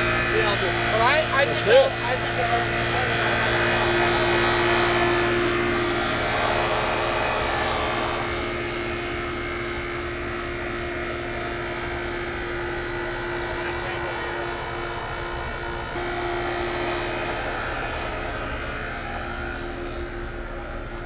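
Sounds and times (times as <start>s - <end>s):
air compressor motor drone: 0.0s - 21.0s.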